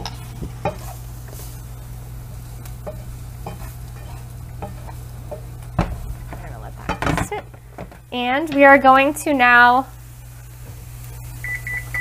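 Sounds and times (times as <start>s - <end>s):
wooden spoon scraping a pan: 0.0s - 8.6s
food sizzling: 0.0s - 12.0s
steady low hum: 0.0s - 12.0s.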